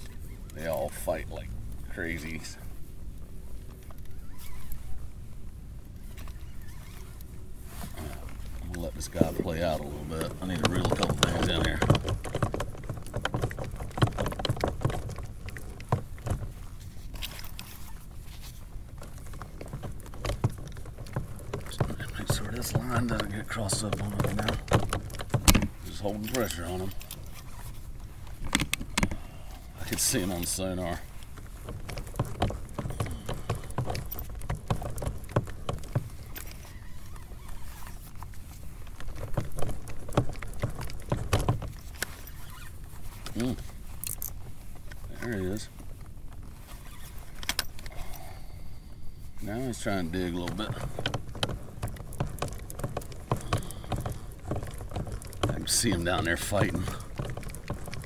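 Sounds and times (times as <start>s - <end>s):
fishing gear clicks and knocks: 0.0s - 58.0s
fishing rods and reels clicking: 50.2s - 58.0s.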